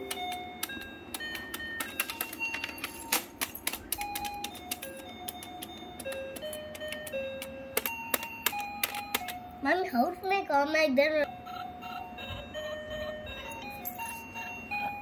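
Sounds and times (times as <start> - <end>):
plastic keys clicking: 0.0 - 9.4
toy keyboard beeping notes: 0.0 - 9.5.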